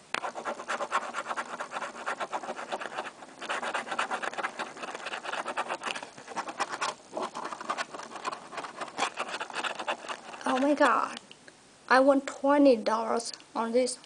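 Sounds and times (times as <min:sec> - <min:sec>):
coin scratching lottery ticket: 0:00.2 - 0:11.0.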